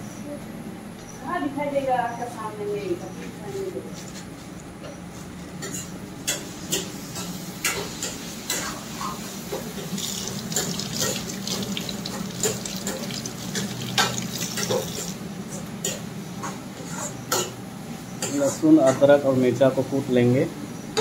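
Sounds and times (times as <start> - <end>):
utensils clicking and clinking: 10.0 - 15.2.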